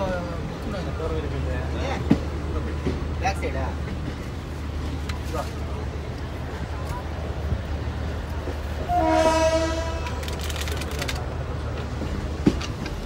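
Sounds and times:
train rumbling along track: 0.0s - 13.0s
locomotive horn blast: 8.8s - 10.2s.

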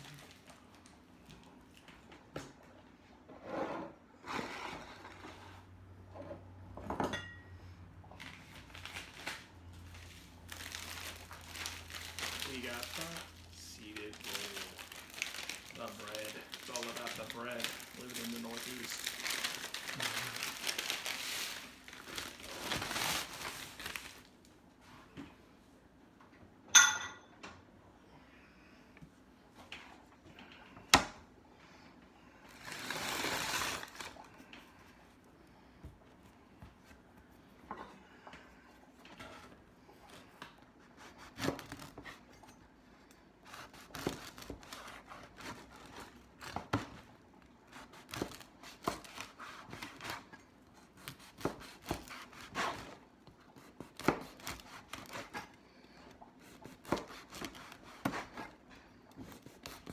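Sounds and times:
packaging crinkling: 8.2s - 24.5s, 32.5s - 34.3s.

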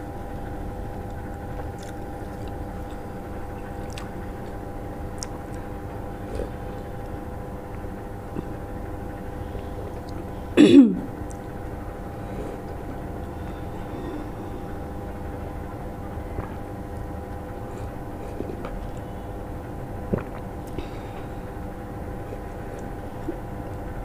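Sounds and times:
steady electrical hum: 0.0s - 24.0s
sipping and swallowing: 1.1s - 8.7s, 19.9s - 23.8s.

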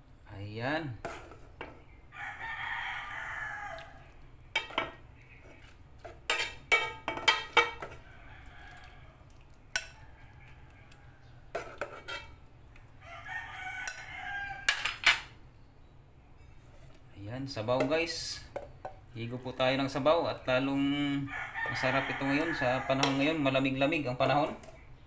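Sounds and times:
rooster crowing: 2.1s - 4.1s, 7.9s - 9.3s, 9.9s - 11.5s, 13.0s - 15.0s, 21.1s - 23.5s
metal fork clinking on pot and bowl: 23.0s - 23.2s.

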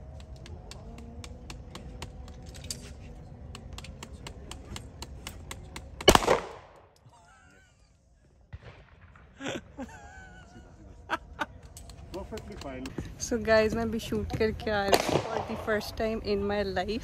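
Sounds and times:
pistol shot: 6.0s - 6.8s, 14.9s - 15.7s.

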